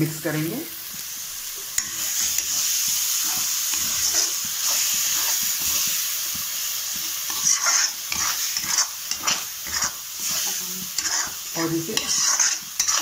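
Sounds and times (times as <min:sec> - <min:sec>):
sauce sizzling in a pan: 0:00.0 - 0:13.0
steel spatula scraping: 0:01.7 - 0:06.0, 0:07.0 - 0:13.0.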